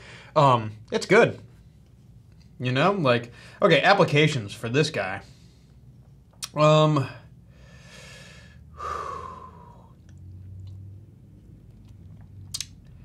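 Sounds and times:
man breathing heavily: 7.4s - 10.0s.

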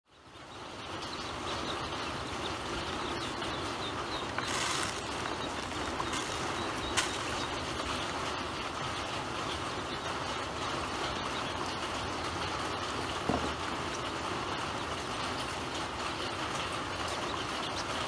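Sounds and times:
ducklings peeping: 0.1s - 18.0s
background hiss: 2.8s - 8.6s
grain rattling into plastic basin: 4.2s - 7.8s.

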